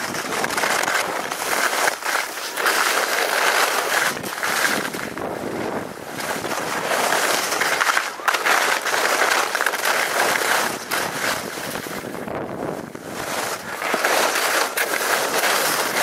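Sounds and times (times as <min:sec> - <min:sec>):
skis scraping icy snow: 0:00.0 - 0:16.0
wind rushing over microphone: 0:04.0 - 0:07.5, 0:10.2 - 0:14.5.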